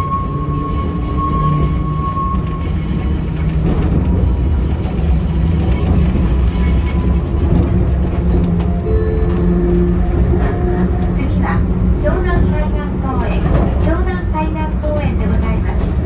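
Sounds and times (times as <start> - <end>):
high wheel squeal: 0.0 - 7.4
train wheels rumbling: 0.0 - 16.0.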